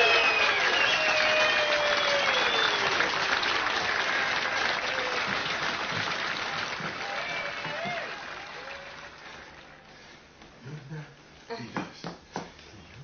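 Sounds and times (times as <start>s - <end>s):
crowd applause: 0.0s - 10.2s.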